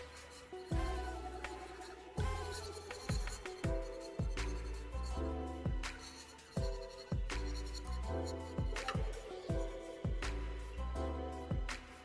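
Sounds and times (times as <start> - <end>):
kick drums: 0.7 - 1.1, 2.2 - 4.6, 5.6 - 6.0, 6.6 - 7.6, 8.6 - 10.6, 11.5 - 12.0
electronic beat with deep bass: 0.7 - 12.0.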